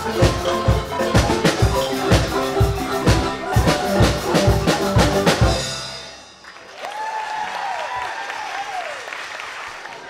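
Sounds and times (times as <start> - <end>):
marimbas and drum kit: 0.0 - 6.7
audience applauding: 6.4 - 10.0
audience cheering: 6.4 - 10.0.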